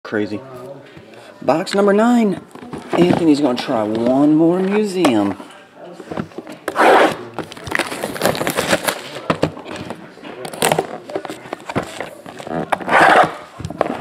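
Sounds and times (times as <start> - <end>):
cardboard boxes handled and opened: 2.3 - 5.4, 6.0 - 14.0
cardboard scraping: 6.2 - 9.2, 10.6 - 14.0.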